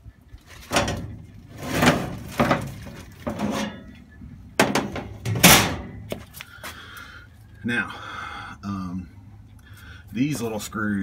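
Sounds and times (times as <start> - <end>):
metal panel scraping and knocking: 0.6 - 4.0, 4.6 - 6.1.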